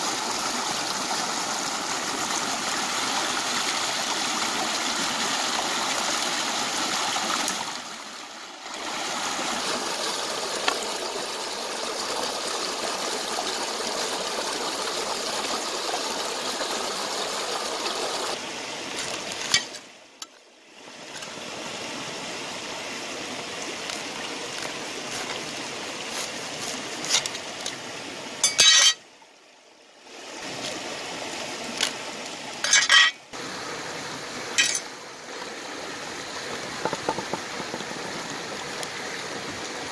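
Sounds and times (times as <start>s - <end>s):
water rushing over rocks: 0.0s - 20.0s, 20.8s - 29.0s, 30.1s - 39.9s.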